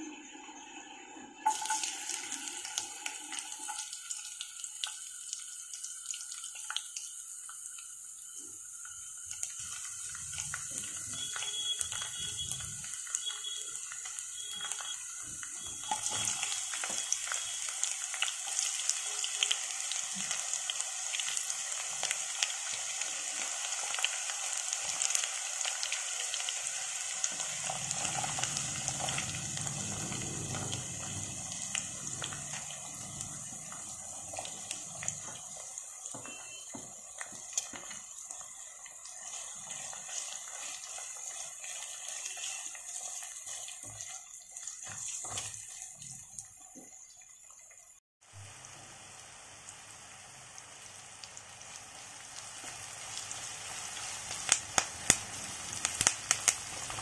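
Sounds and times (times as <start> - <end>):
hot oil sizzling and crackling: 1.4 - 57.0.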